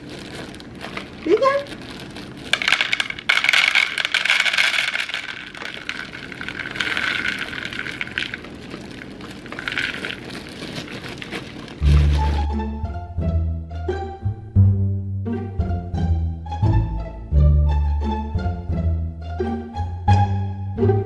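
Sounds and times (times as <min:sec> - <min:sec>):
kibble rattling into plastic bowl: 0:00.0 - 0:12.5
plastic bag crinkling: 0:00.0 - 0:12.5.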